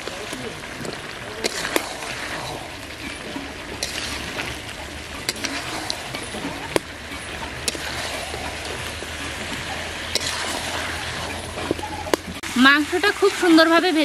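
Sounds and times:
food sizzling in a pot: 0:00.0 - 0:14.0
metal spatula scraping pot: 0:01.4 - 0:12.5.

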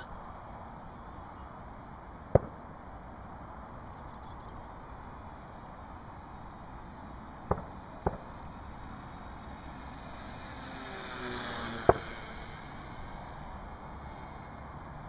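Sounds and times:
steady background hiss: 0:00.0 - 0:15.0
model plane motor buzzing: 0:08.7 - 0:15.0.

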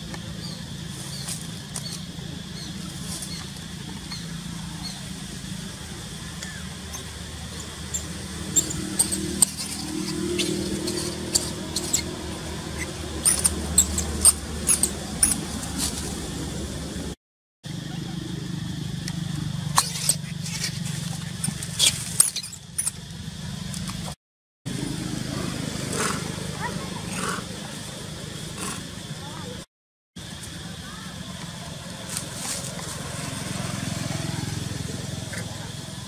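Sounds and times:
steady low hum: 0:00.0 - 0:29.6
high squeaks and clicks: 0:06.4 - 0:16.2, 0:19.7 - 0:23.1.

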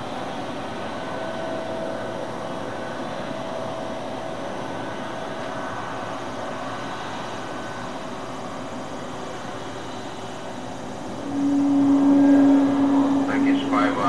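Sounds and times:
jet engines idling: 0:00.0 - 0:14.0.

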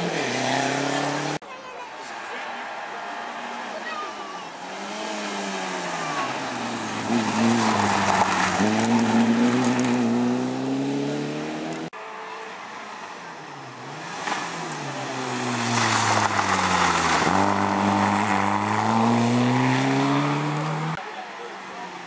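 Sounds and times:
rally car engines at full throttle: 0:00.0 - 0:22.0.

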